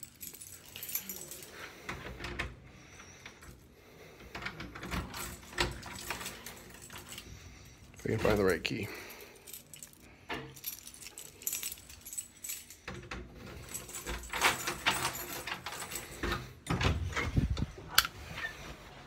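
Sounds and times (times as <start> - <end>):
keys jangling: 0.0 - 2.4, 4.3 - 16.8.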